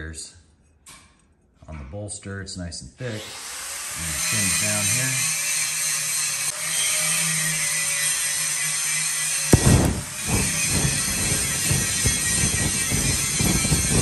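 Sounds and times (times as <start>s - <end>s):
power tool whining: 3.2s - 14.0s
gas forge burner rushing: 9.6s - 14.0s.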